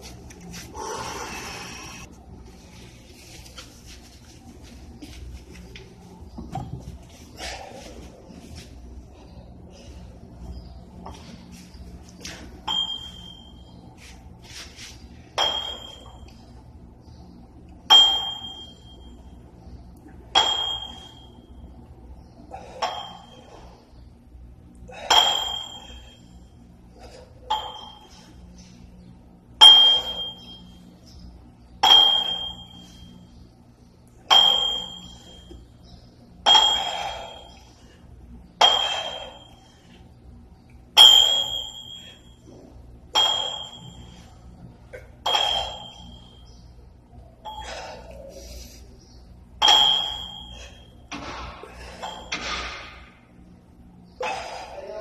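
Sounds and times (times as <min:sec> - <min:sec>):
dumbbells clinking: 0:12.6 - 0:13.6, 0:15.4 - 0:16.3, 0:17.9 - 0:19.0, 0:20.3 - 0:21.4, 0:22.8 - 0:23.5, 0:25.0 - 0:26.3, 0:27.4 - 0:28.2, 0:29.7 - 0:30.7, 0:31.8 - 0:33.0, 0:34.3 - 0:35.6, 0:36.4 - 0:37.7, 0:38.6 - 0:39.7, 0:41.0 - 0:42.5, 0:43.1 - 0:44.3, 0:45.2 - 0:46.5, 0:47.5 - 0:48.2, 0:49.6 - 0:53.1.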